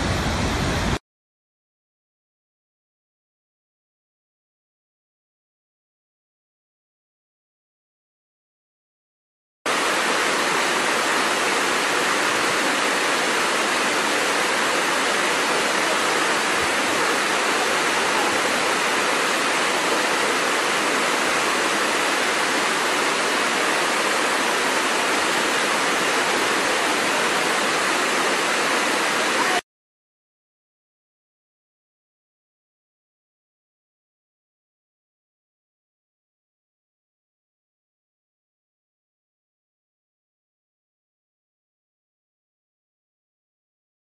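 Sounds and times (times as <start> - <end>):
waterfall rushing: 0.0 - 1.0, 9.7 - 29.6.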